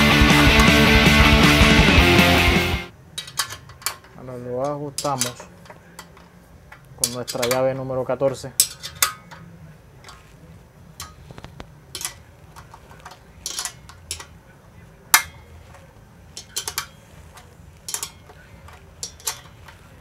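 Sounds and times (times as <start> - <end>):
wrench clicking on metal bolt: 3.2 - 8.0, 8.6 - 9.5, 11.9 - 14.4, 15.1 - 15.5, 16.4 - 19.9.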